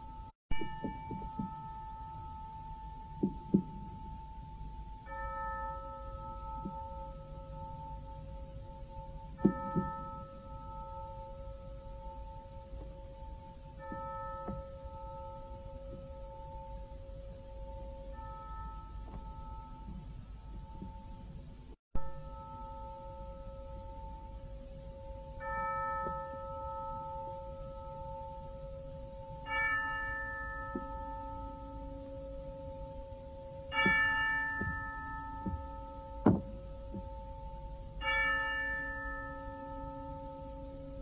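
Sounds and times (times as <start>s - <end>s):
dull thuds: 35.5s - 37.2s.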